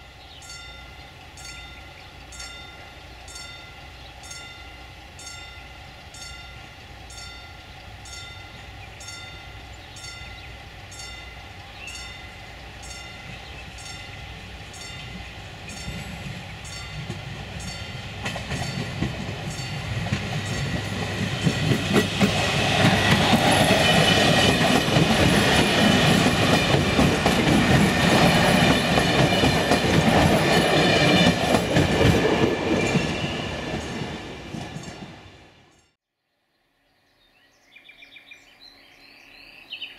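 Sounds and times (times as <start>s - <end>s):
electric train passing: 0.0s - 35.9s
train wheels clattering on rails: 11.8s - 35.5s.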